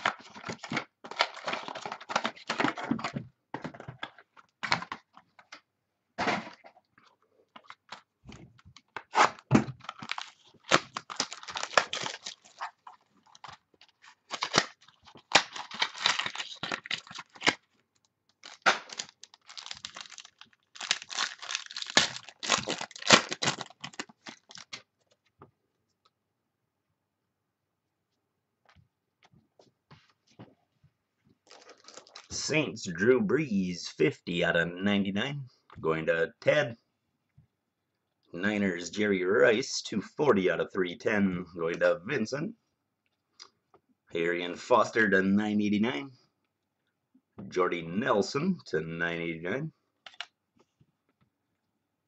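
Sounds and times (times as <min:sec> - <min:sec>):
cards rustling: 0:00.0 - 0:03.1, 0:07.6 - 0:17.7, 0:18.3 - 0:25.2, 0:31.5 - 0:32.3
wrapping paper tearing and crinkling: 0:09.1 - 0:17.6, 0:18.4 - 0:24.8, 0:31.5 - 0:32.3.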